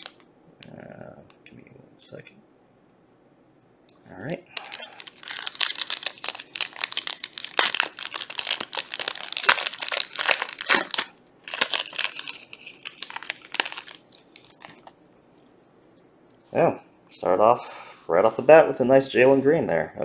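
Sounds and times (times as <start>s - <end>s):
foil wrapper crinkling: 0.0s - 0.2s, 4.6s - 15.0s.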